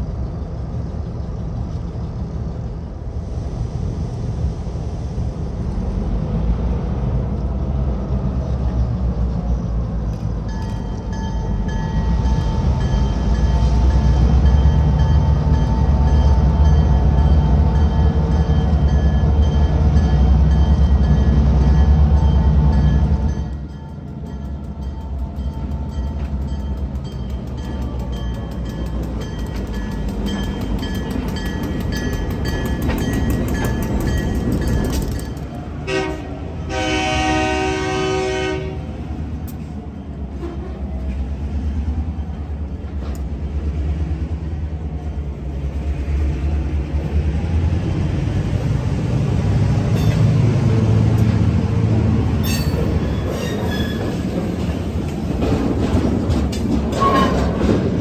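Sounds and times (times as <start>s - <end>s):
diesel locomotive rumbling: 0.0s - 58.0s
train horn: 35.8s - 39.0s, 40.4s - 40.9s.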